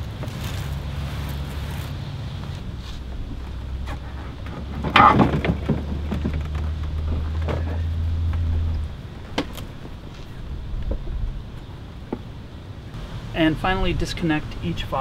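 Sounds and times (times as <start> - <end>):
plastic clatter: 3.9 - 8.4.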